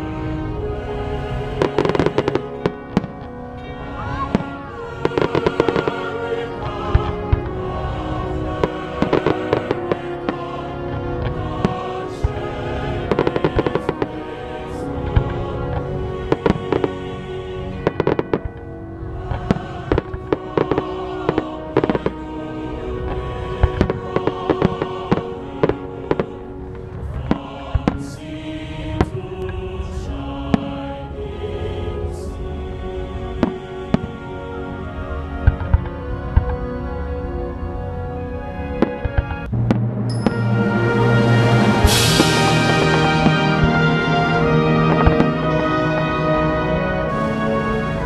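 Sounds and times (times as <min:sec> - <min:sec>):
music: 0:00.0 - 0:48.0
fireworks crackling pops: 0:01.6 - 0:03.4, 0:04.3 - 0:07.5, 0:15.1 - 0:17.1, 0:17.9 - 0:18.7, 0:19.3 - 0:22.3, 0:23.1 - 0:28.2, 0:33.4 - 0:34.3, 0:41.5 - 0:46.0
firework bang: 0:39.1 - 0:44.2
firework shells bursting: 0:41.4 - 0:46.0.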